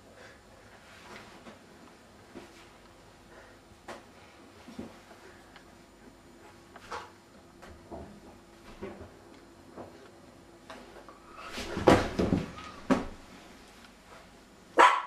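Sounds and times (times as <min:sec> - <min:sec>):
knocks against wooden cabinets: 0:11.8 - 0:13.2.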